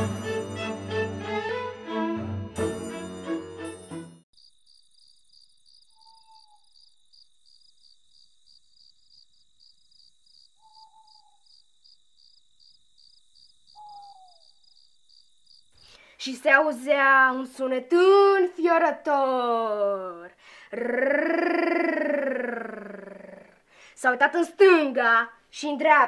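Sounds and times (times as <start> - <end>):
orchestral string music: 0.0 - 4.2
crickets chirping: 4.3 - 17.6.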